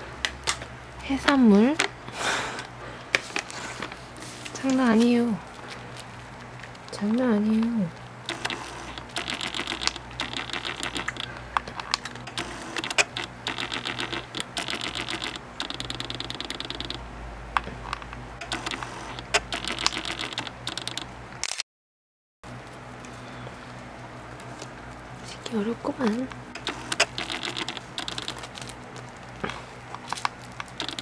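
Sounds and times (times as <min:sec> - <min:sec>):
cat crunching dry treats: 0:05.4 - 0:07.0, 0:07.6 - 0:17.0, 0:22.7 - 0:31.0.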